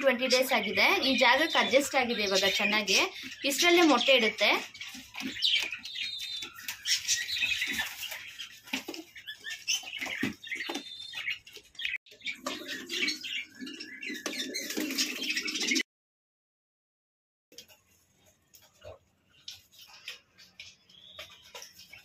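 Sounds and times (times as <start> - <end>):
pigeons chirping: 0.0 - 15.8, 18.5 - 22.0
pigeons cooing: 12.2 - 15.8.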